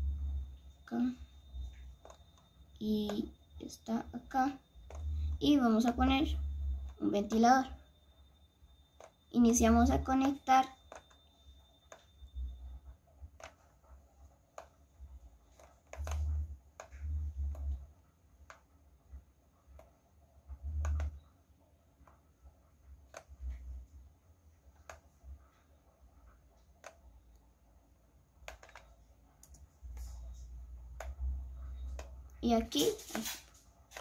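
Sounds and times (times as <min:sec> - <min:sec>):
computer mouse clicks: 0:01.5 - 0:03.3, 0:04.8 - 0:07.5, 0:09.0 - 0:09.2, 0:09.9 - 0:12.5, 0:13.3 - 0:18.7, 0:19.7 - 0:21.3, 0:22.9 - 0:23.8, 0:24.6 - 0:25.6, 0:26.5 - 0:27.5, 0:28.4 - 0:34.0.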